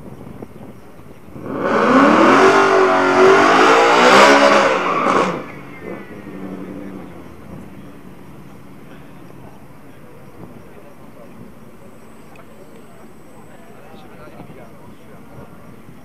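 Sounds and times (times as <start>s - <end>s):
drag racing car accelerating: 1.3s - 9.5s.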